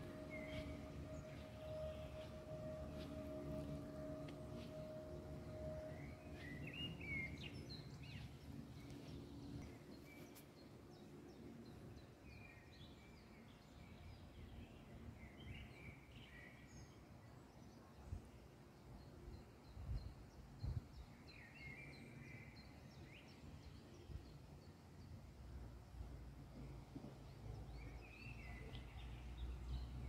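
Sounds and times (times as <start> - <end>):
held tone: 0.0 - 8.0
low rumbling background noise: 0.0 - 30.0.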